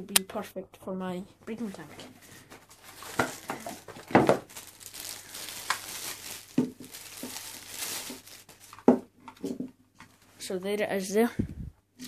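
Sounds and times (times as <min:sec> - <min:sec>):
plastic bag crinkling: 0:02.3 - 0:09.0
packaging knock: 0:03.0 - 0:09.1.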